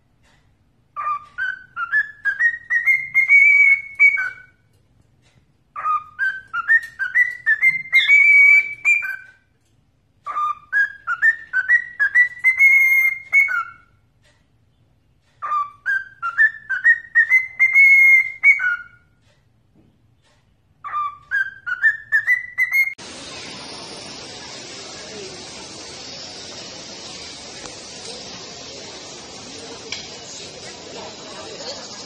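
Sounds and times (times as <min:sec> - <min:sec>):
cockatiel whistling a tune: 0:01.0 - 0:04.6, 0:05.8 - 0:09.4, 0:10.2 - 0:14.0, 0:15.4 - 0:19.1, 0:20.8 - 0:23.0.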